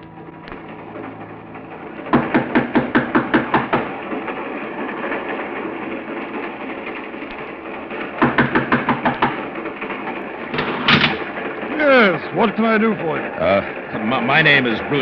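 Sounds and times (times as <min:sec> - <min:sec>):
train rumbling: 0:00.0 - 0:15.0
sharp knocks: 0:02.0 - 0:05.3, 0:07.3 - 0:11.7.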